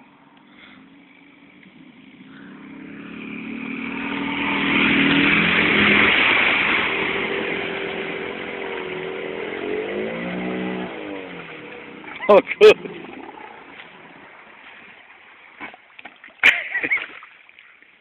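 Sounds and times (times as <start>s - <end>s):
water splashing: 1.6s - 18.0s
car engine revving hard: 1.7s - 14.2s.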